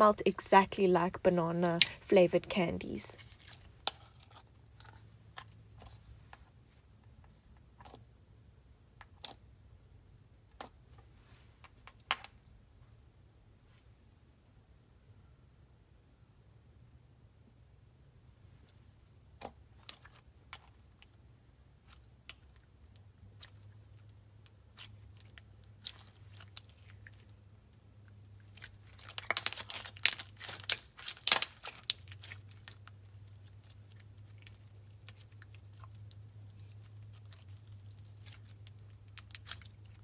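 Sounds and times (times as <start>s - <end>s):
slime squished by hand: 28.4s - 40.0s.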